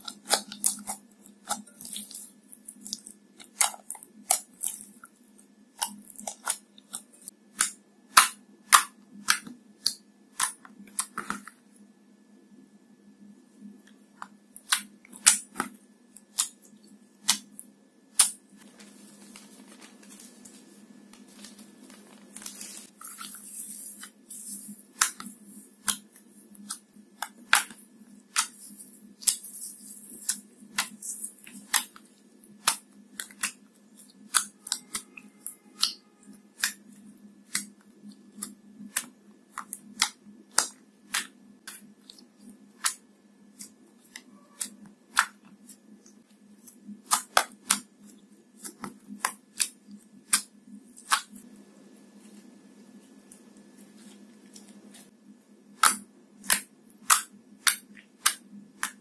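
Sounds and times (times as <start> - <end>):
foil crinkling hiss: 18.6 - 23.9.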